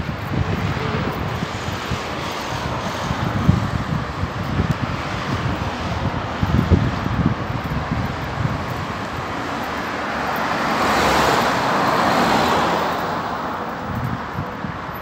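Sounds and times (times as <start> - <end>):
car passing: 0.0 - 15.0.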